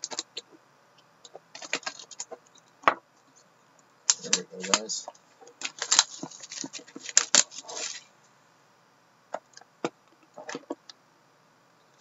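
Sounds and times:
trading cards clicking: 4.1s - 4.9s.

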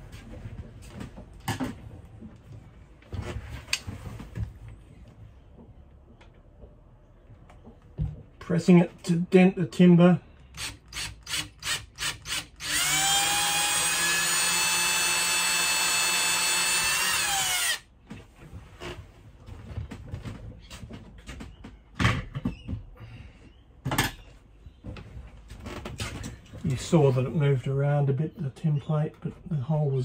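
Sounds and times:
cordless drill boring into wood: 10.6s - 17.9s.

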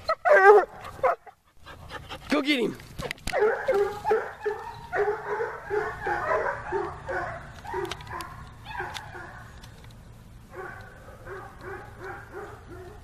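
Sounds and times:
dog barking rapidly: 3.3s - 9.5s.

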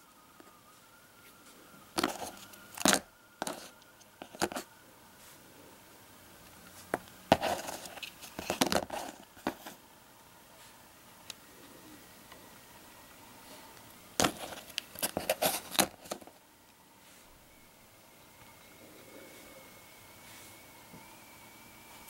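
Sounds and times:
cardboard holders rustling: 2.0s - 4.7s, 6.7s - 9.8s, 14.2s - 16.4s.

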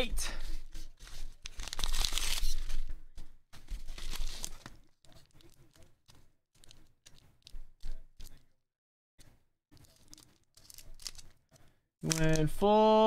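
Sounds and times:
plastic sleeve rustling: 0.4s - 8.5s, 9.8s - 12.6s
paper envelope tearing: 1.0s - 2.9s, 3.7s - 5.6s, 9.8s - 11.3s.

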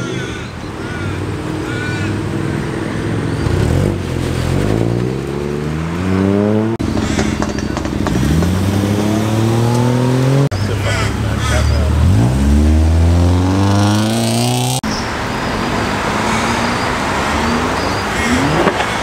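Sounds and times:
car engine revving and accelerating: 2.3s - 19.0s
second car engine pulling off: 2.9s - 10.8s.

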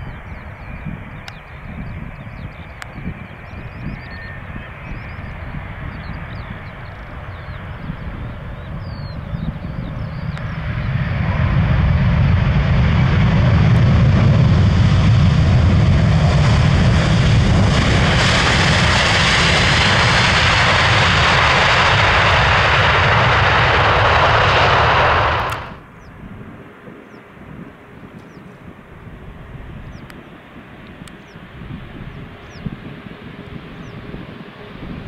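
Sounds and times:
jet airliner engine rumble: 0.0s - 35.0s
bright hissy jet roar: 15.2s - 25.8s.

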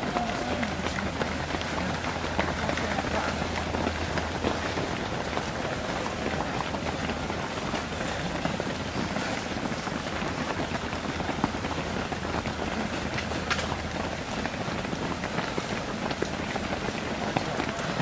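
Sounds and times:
runners' footsteps on tarmac: 0.0s - 18.0s.

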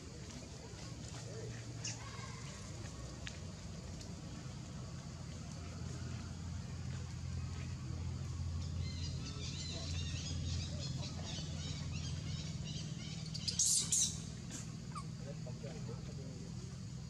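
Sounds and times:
steady low hum: 0.0s - 17.0s
small birds chirping: 8.6s - 16.6s.

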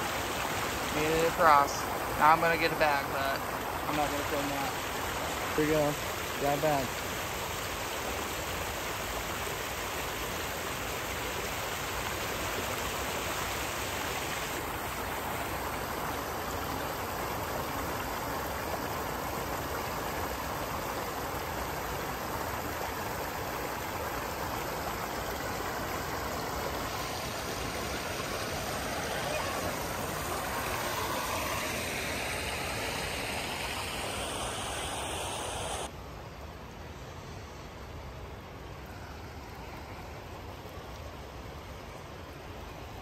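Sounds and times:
river flowing over rocks: 0.0s - 43.0s.

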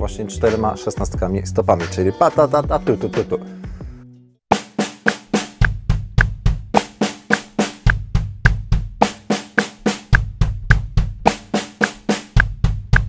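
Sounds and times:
snare drum strokes: 4.5s - 13.0s
bass drum strokes: 5.4s - 9.3s, 9.9s - 11.6s.

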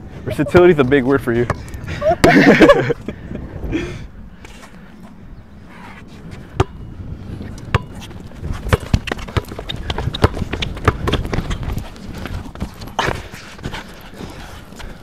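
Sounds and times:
wind rumble on microphone: 0.0s - 15.0s
basketball bouncing on hard court: 8.5s - 13.2s.

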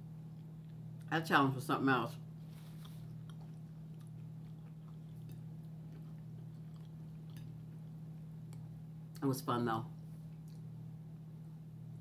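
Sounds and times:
steady low hum: 0.0s - 12.0s
wet chewing clicks and smacks: 2.8s - 8.7s, 10.3s - 10.7s.

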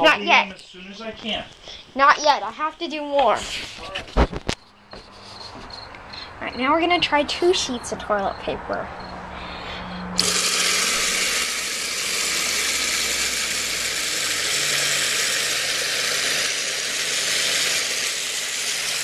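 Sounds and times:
toilet water rushing into bowl: 10.2s - 19.0s.

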